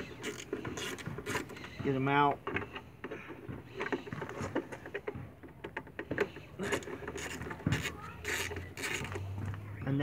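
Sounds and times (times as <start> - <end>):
plastic clicks rubs and scrapes: 0.0 - 1.8, 3.8 - 9.3.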